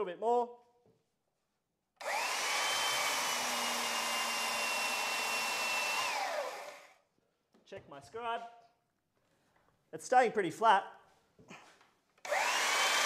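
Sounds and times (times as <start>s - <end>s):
belt sander whining: 2.0s - 7.0s, 12.2s - 13.0s.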